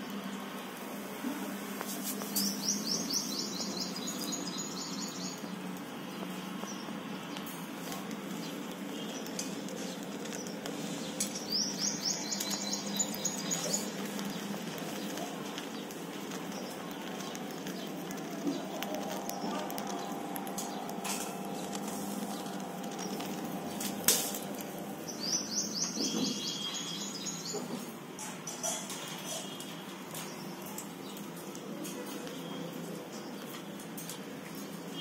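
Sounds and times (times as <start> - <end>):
birds chirping: 2.2 - 35.0
low hum: 16.6 - 25.8.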